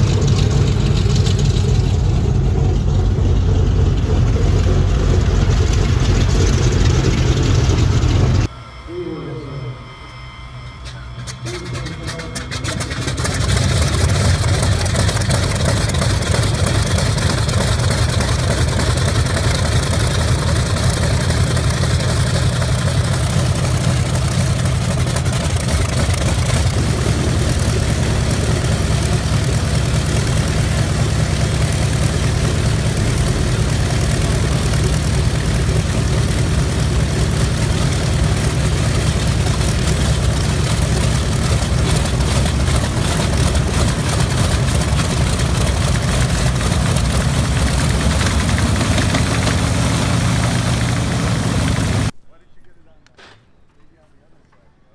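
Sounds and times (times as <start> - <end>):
thin high tone: 8.4 - 13.3.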